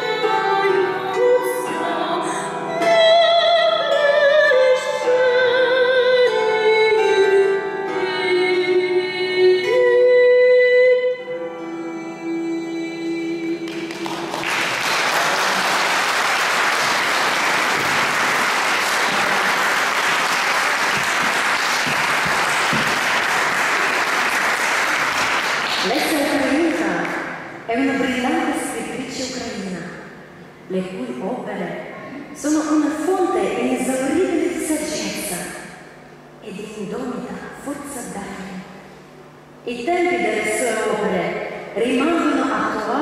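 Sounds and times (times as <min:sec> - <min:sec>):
woman singing: 0:00.0 - 0:14.1
plucked string instrument: 0:00.0 - 0:16.1, 0:16.8 - 0:28.7
audience applause: 0:13.7 - 0:27.2.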